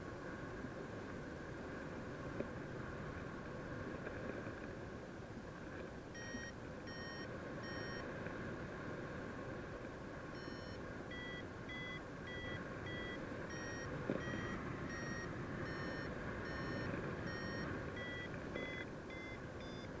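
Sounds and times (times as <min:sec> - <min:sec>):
variometer short beeps: 0:06.1 - 0:08.1, 0:10.4 - 0:20.0.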